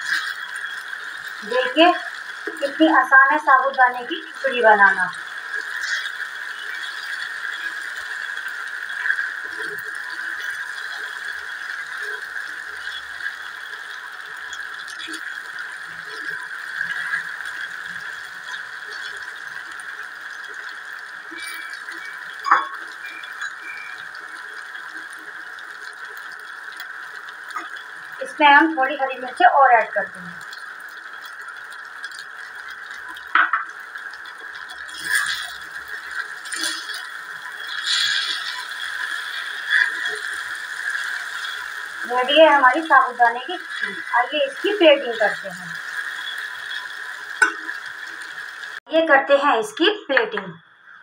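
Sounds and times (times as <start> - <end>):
pan hissing on stove: 0.0 - 49.6
metal spoon scraping a pan: 34.6 - 43.1.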